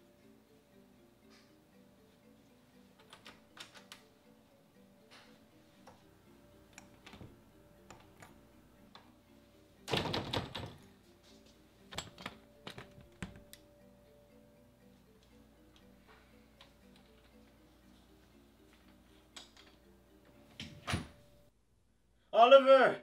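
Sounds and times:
soft background music: 0:00.0 - 0:21.6
doorknob clicking and rattling: 0:09.9 - 0:10.8.

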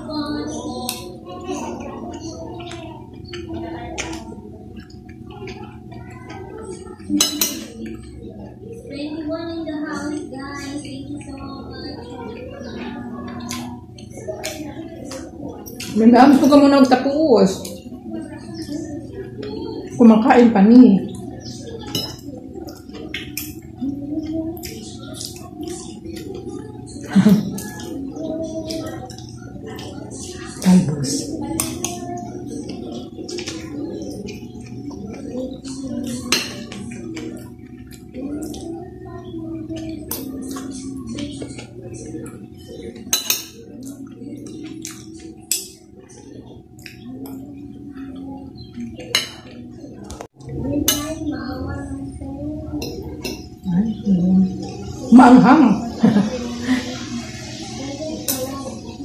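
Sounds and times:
cutlery clinking on glass plate: 0:07.2 - 0:07.8.

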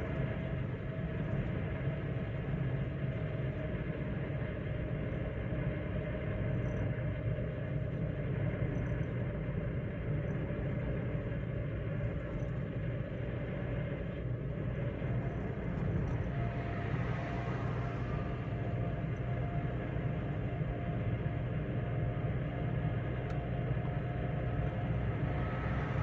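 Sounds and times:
car engine hum: 0:00.0 - 0:26.0
tyres rumbling on road: 0:13.3 - 0:26.0.

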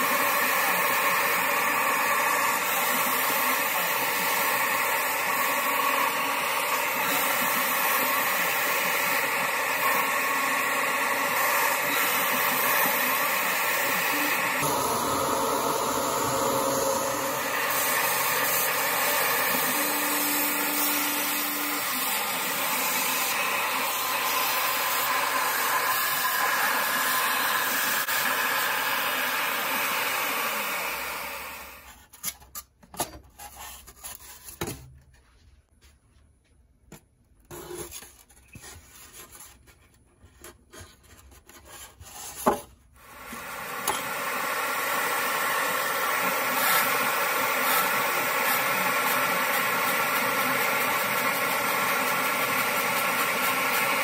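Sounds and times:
mill spindle running: 0:00.0 - 0:31.8, 0:43.0 - 0:54.0
end mill cutting foam: 0:00.0 - 0:31.9, 0:42.4 - 0:54.0
shop vac running: 0:00.0 - 0:32.0, 0:40.8 - 0:54.0.

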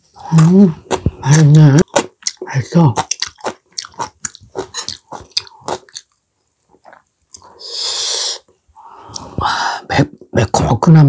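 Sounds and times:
wet chewing and lip-smacking: 0:01.8 - 0:07.6.

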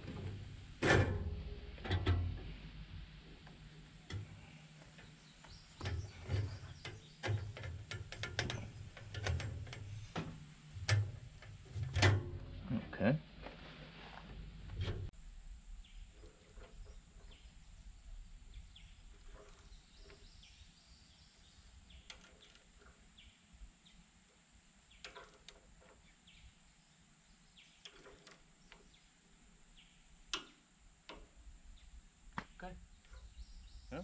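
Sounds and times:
faint bird chirps: 0:31.7 - 0:34.0.

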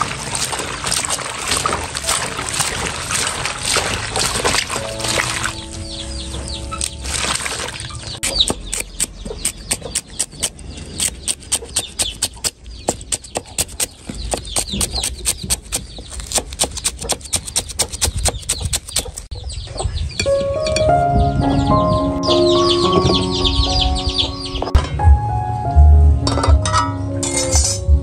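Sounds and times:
cleaver chopping on wooden board: 0:08.2 - 0:19.0.

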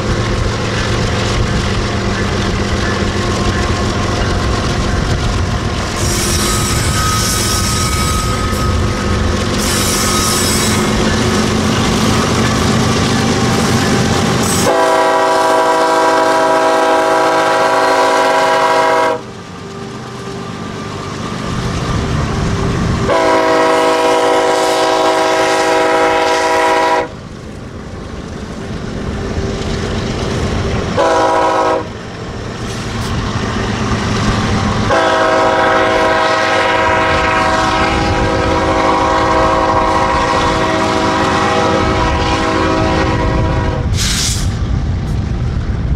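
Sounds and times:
wheel-on-rail noise: 0:00.0 - 0:43.7
locomotive air horn blasts: 0:14.4 - 0:19.3, 0:23.0 - 0:27.2, 0:31.0 - 0:31.9, 0:34.9 - 0:44.0.

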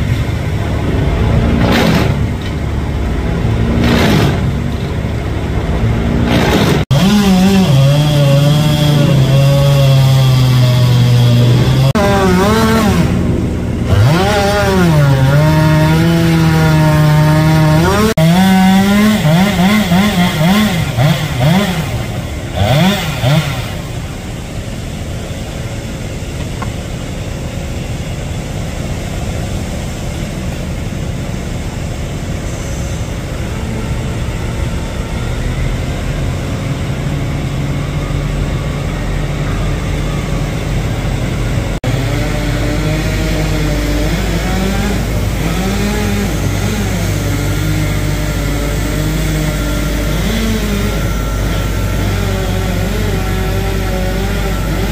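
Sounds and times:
quiet steady engine: 0:00.0 - 0:07.0, 0:10.9 - 0:15.2, 0:20.2 - 0:54.9
chainsaw cutting wood: 0:01.4 - 0:02.5, 0:03.6 - 0:04.8, 0:05.8 - 0:24.6, 0:41.8 - 0:54.9.

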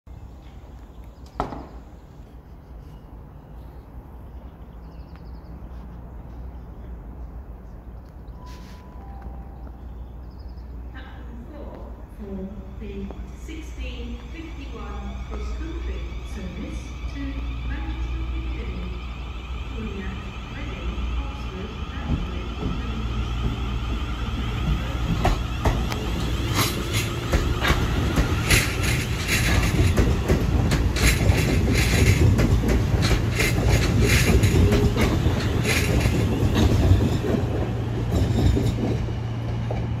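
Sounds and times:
train low hum: 0:00.1 - 0:40.0
train wheels clicking over rail joints: 0:20.6 - 0:40.0.

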